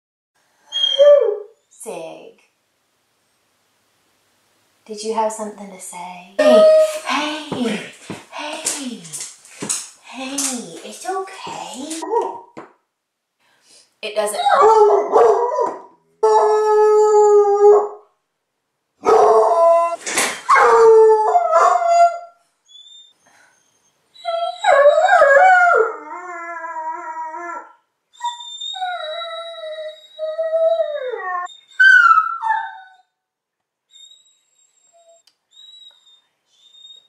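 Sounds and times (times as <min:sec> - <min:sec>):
dog howling and whining: 0:00.7 - 0:01.6, 0:06.4 - 0:07.1, 0:12.0 - 0:12.5, 0:14.3 - 0:18.0, 0:19.0 - 0:33.1.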